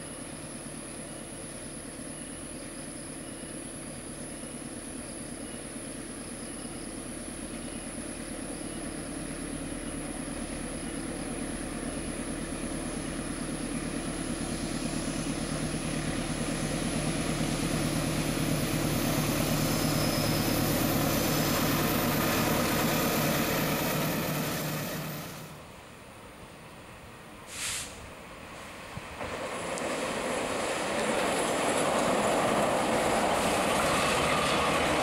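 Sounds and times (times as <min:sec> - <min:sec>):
diesel locomotive engine running: 0:00.0 - 0:35.0.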